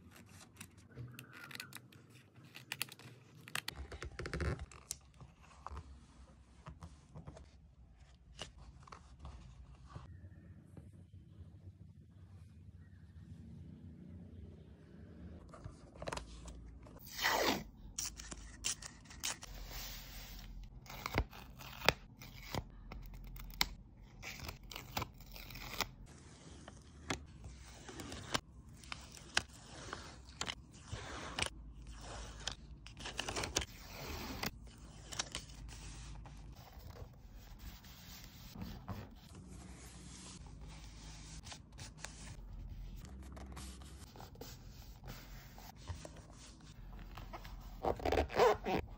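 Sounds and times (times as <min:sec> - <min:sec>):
paper rustling and scraping: 0:24.2 - 0:48.9.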